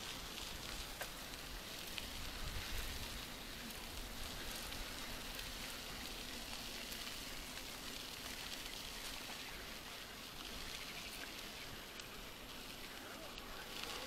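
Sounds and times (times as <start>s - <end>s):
bicycle tyres rolling on gravel: 0.0s - 14.0s.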